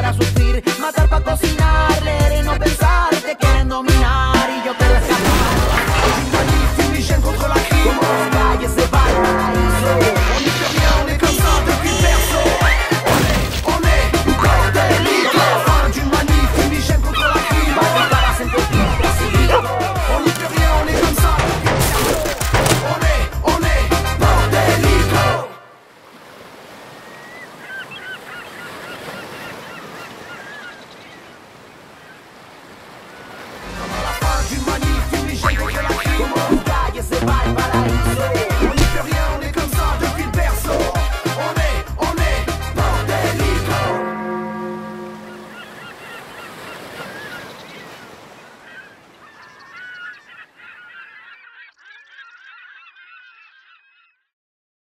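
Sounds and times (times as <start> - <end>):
music: 0.0 - 25.5, 33.6 - 44.7
gulls squawking: 4.4 - 25.4, 26.8 - 41.3, 43.1 - 54.2.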